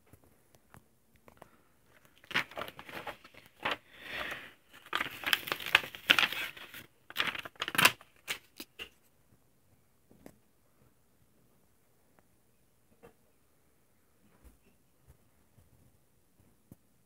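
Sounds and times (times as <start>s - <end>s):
pages turning: 1.4s - 8.9s.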